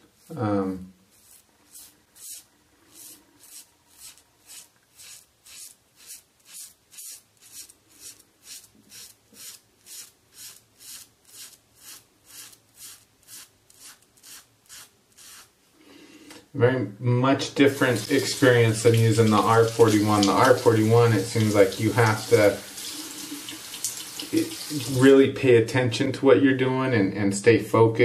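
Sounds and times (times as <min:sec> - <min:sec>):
razor scraping stubble: 0:01.1 - 0:15.5.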